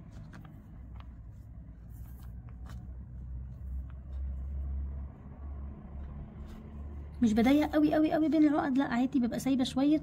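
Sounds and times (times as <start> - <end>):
cord rustling and ticking: 0.0 - 5.0.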